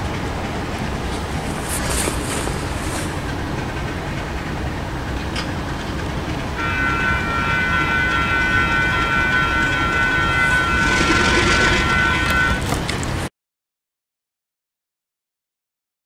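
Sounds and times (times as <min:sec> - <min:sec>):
diesel locomotive rumbling: 0:00.0 - 0:13.3
high multi-tone horn chord: 0:06.6 - 0:12.8.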